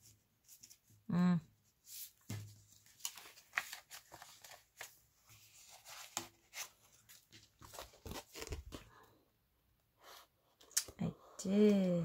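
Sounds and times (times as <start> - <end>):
paper rustling and crinkling: 1.8 - 9.1.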